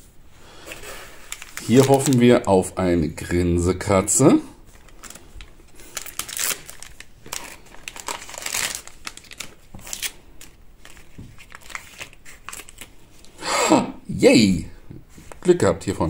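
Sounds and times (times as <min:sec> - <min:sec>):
plastic packaging crinkling: 0:00.7 - 0:02.8, 0:04.7 - 0:13.3.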